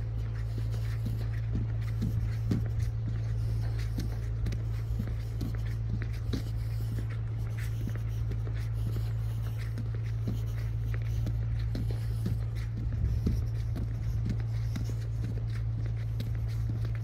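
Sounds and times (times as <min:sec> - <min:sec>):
footsteps on paving: 0:00.0 - 0:17.0
steady low hum: 0:00.0 - 0:17.0.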